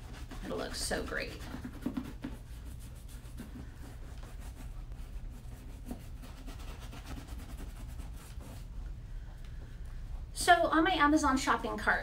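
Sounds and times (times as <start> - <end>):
brush rubbing leather: 0.0 - 8.8
steady low hum: 0.0 - 12.0.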